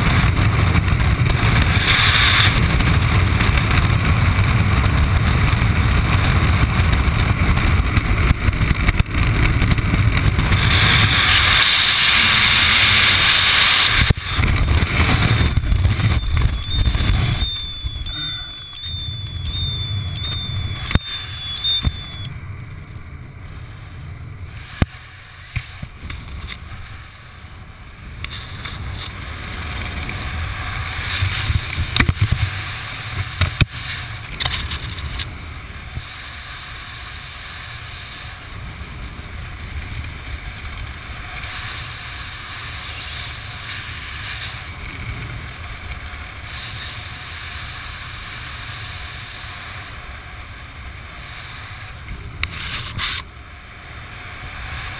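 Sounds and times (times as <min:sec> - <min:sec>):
wind buffeting microphone: 0:00.0 - 0:36.2
high warbling electronic beep: 0:15.3 - 0:22.4.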